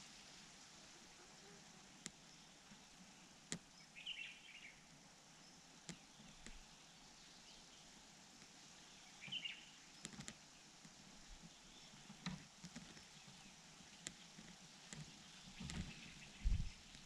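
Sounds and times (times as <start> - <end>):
faint hiss: 0.0 - 17.0
bird chirps: 3.8 - 4.8, 9.0 - 9.8.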